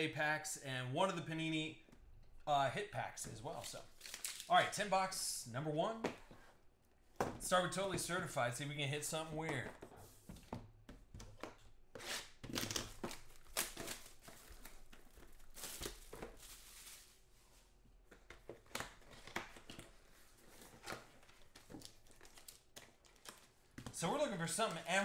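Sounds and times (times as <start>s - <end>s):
wrappers crinkling and tearing: 3.5s - 4.5s, 12.5s - 17.2s, 20.8s - 23.7s.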